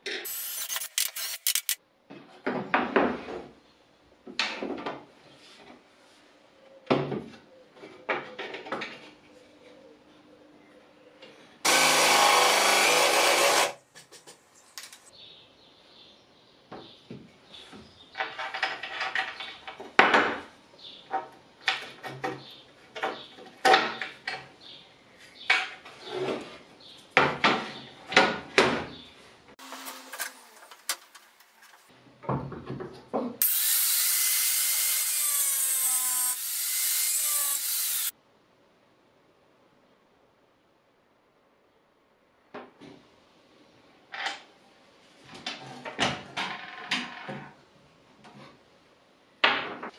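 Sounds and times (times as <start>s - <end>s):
power tool running: 0.3s - 1.8s, 11.7s - 13.8s, 33.4s - 38.1s.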